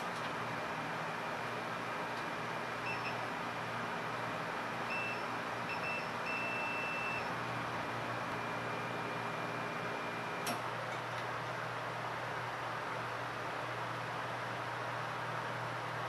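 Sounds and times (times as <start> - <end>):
short electronic beeps: 4.9 - 7.3.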